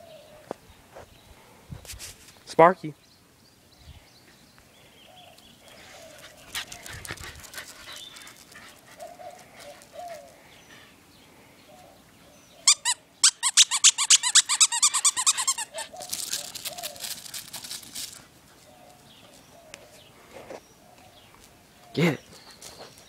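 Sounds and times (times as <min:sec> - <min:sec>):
dog toy squeaking: 0:12.7 - 0:16.8.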